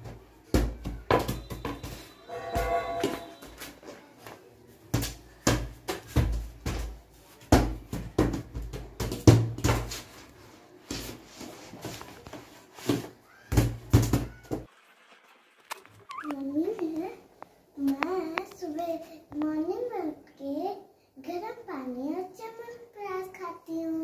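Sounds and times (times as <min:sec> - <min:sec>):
rubber ball bouncing on tiles: 0:04.9 - 0:10.0.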